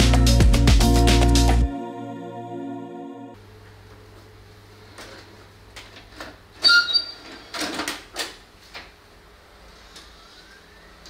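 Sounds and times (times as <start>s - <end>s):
short mechanical squeak: 6.6s - 7.5s.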